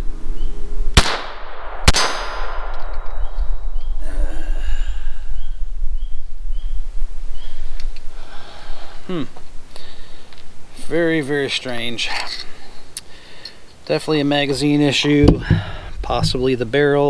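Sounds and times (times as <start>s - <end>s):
pistol shots: 1.0s - 2.8s.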